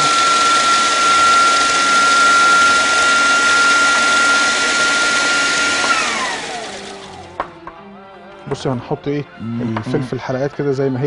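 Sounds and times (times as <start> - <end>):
food processor grinding: 0.0 - 7.6
motor spinning down: 0.0 - 7.6.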